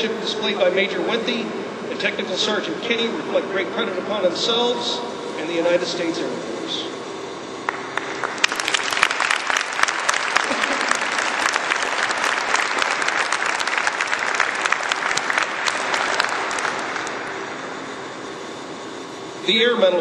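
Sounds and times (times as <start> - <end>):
audience applauding: 7.6 - 17.4.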